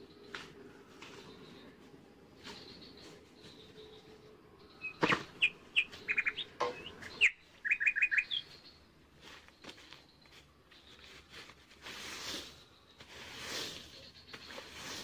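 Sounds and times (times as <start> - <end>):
small bird chirping: 1.1 - 15.0
footsteps rustling dry leaves: 7.8 - 15.0.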